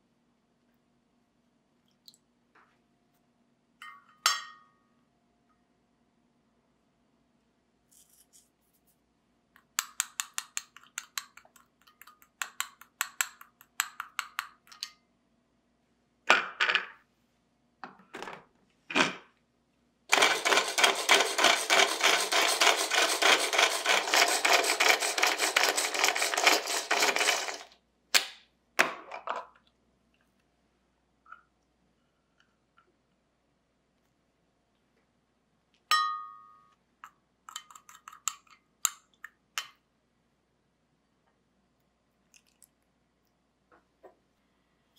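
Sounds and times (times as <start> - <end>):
food chopper blades rattling: 20.1 - 27.7
spoon clinking in glass cup: 35.9 - 38.6.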